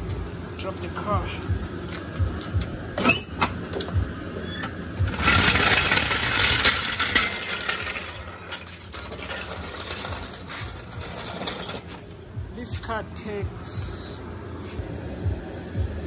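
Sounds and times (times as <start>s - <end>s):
car jack rattling: 3.0s - 12.2s.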